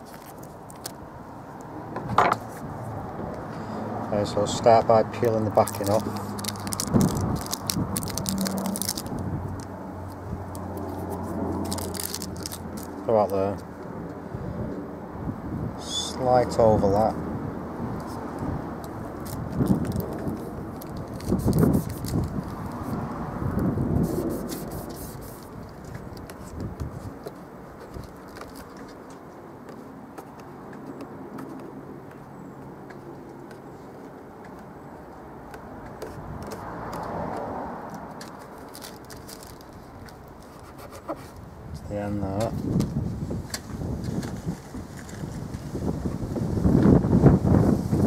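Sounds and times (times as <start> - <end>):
tape backing peeling crackles: 0.0 - 1.0, 5.2 - 13.7, 18.0 - 32.2, 35.4 - 41.4
soft rustle with small clicks: 35.5 - 41.4.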